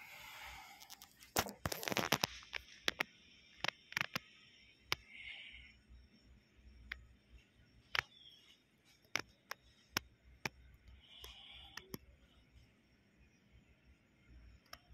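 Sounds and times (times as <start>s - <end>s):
soft hiss: 0.0s - 14.9s
light clicks and taps: 7.8s - 12.1s.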